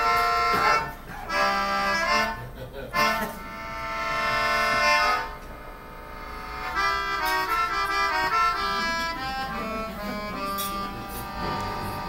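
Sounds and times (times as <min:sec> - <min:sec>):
keyboard playing jazz: 0:00.0 - 0:12.0
upright bass: 0:06.2 - 0:12.0.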